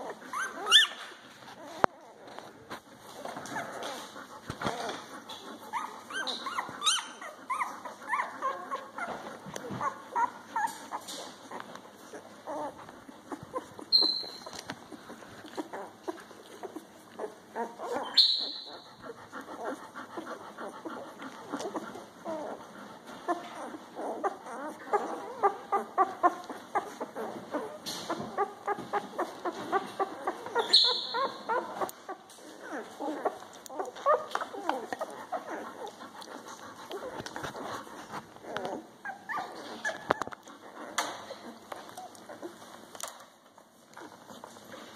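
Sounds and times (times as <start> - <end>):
puppy squeals: 0.0 - 2.3, 5.7 - 19.8, 23.3 - 36.0, 38.4 - 42.6
puppies squeaking and whimpering: 0.0 - 44.9.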